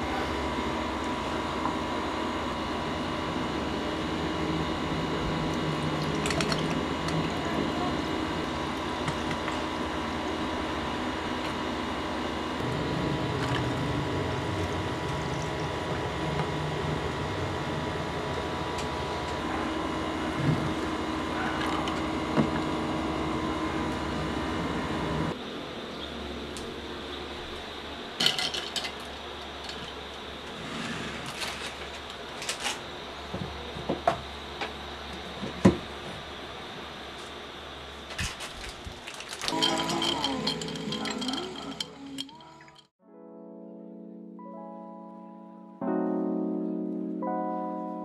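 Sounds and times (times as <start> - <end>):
steady mechanical hum: 0.0 - 42.9
coffee pouring over ice: 39.0 - 42.9
glass clinks: 39.5 - 42.8.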